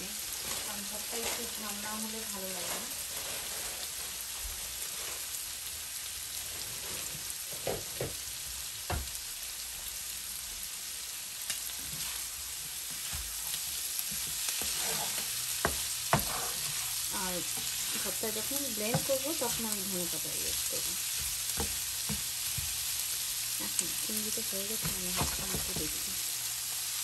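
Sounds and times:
food sizzling in hot oil: 0:00.0 - 0:27.0
spatula stirring: 0:11.7 - 0:23.1.

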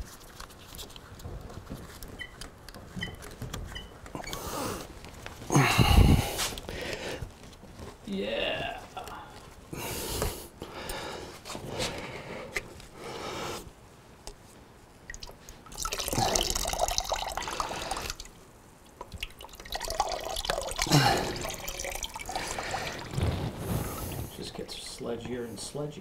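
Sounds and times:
liquid pouring into plastic bucket: 0:15.1 - 0:18.4, 0:19.0 - 0:24.8.

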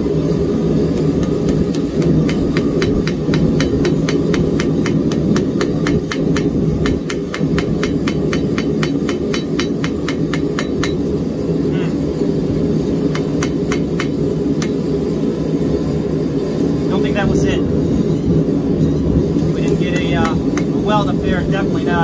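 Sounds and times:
gas forge burner rushing: 0:00.0 - 0:22.0
hammer tapping steel on anvil: 0:01.0 - 0:11.1, 0:13.1 - 0:14.8, 0:19.6 - 0:20.8.

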